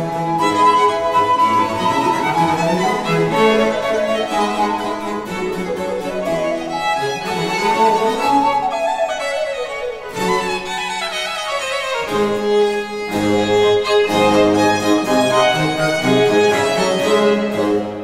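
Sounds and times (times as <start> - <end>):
alto recorder melody: 0.0 - 11.8
baroque chamber ensemble: 0.0 - 18.0.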